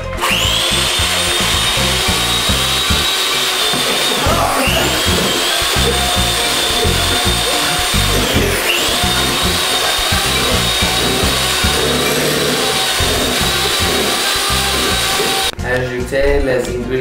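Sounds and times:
electric hand mixer whining: 0.0s - 15.6s
background music: 0.0s - 17.0s.

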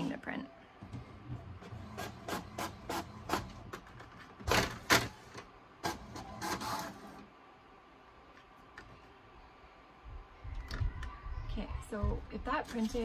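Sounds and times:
inkjet printer printing: 0.9s - 7.3s.

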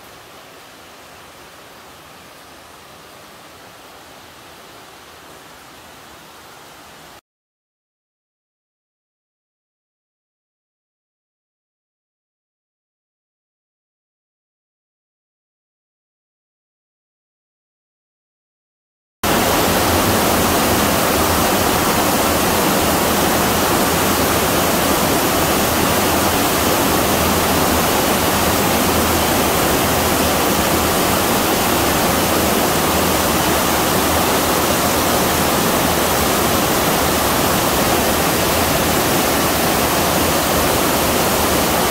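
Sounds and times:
waterfall rushing: 19.3s - 41.9s.

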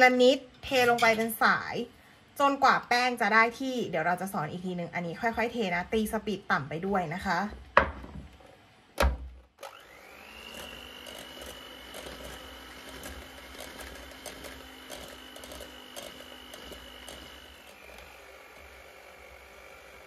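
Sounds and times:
electric mixer motor whine: 9.6s - 20.0s.

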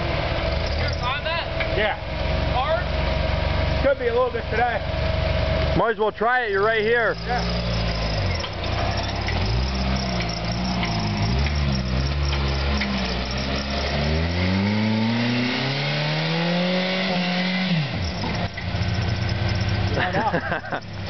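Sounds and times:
engine revving under load: 6.5s - 21.0s.

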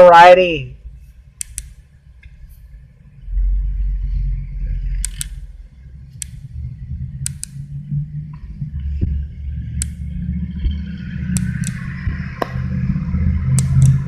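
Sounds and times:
car rolling low rumble: 0.7s - 14.0s
sharp clicks: 1.4s - 2.4s, 4.9s - 5.4s, 6.2s - 6.4s, 7.2s - 7.6s, 9.8s - 10.0s, 11.3s - 12.6s, 13.6s - 14.0s.

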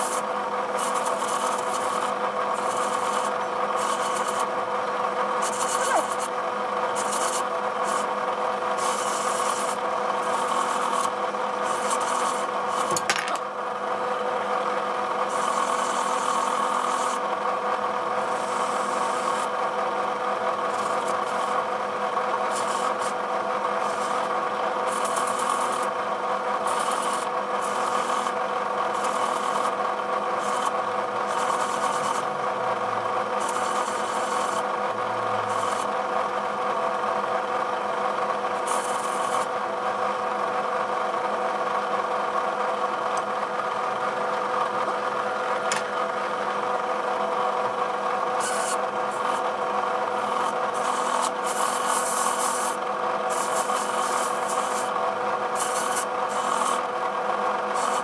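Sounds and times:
power tool motor grinding: 0.0s - 4.5s, 33.4s - 34.7s, 38.6s - 39.5s, 50.1s - 56.9s, 57.6s - 58.0s.

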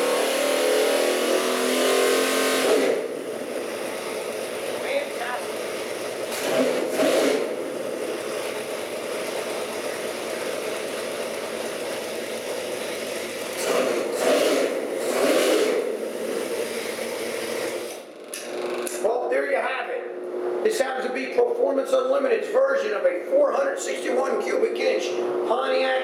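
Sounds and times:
car engine idling and revving: 0.0s - 18.3s.

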